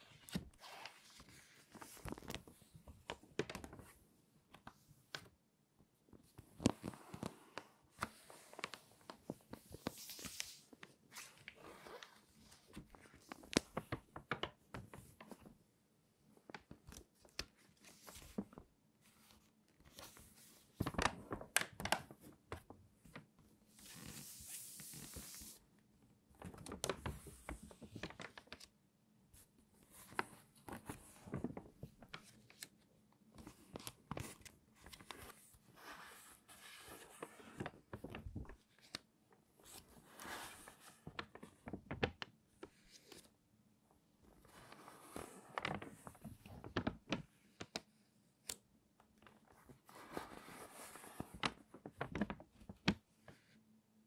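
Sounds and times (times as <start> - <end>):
magazine pages crinkling: 0.2 - 3.8, 26.4 - 28.7, 36.8 - 39.0, 49.3 - 53.0
sliding paper rustle: 33.4 - 39.0, 39.6 - 43.3, 44.4 - 47.8, 49.3 - 53.4.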